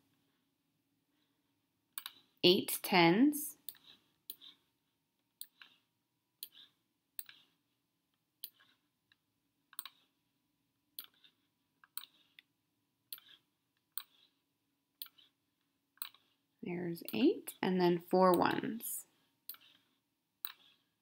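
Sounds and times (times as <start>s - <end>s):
computer mouse clicks: 2.0s - 2.2s, 6.4s - 7.5s, 8.4s - 8.8s, 9.7s - 10.1s, 11.0s - 12.4s, 13.1s - 14.3s, 15.0s - 15.3s, 16.0s - 16.3s, 17.0s - 17.2s, 19.5s - 19.8s.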